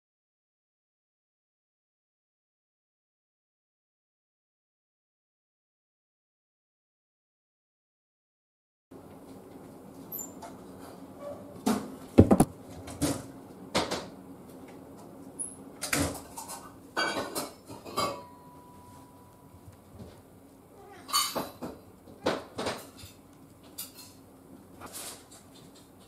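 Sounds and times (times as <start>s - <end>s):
sharp clacks and knocks: 12.2s - 12.5s.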